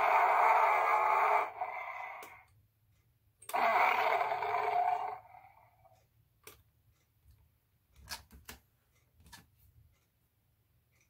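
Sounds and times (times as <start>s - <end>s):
electronic monster roar from toy: 0.0s - 2.5s, 3.5s - 5.9s.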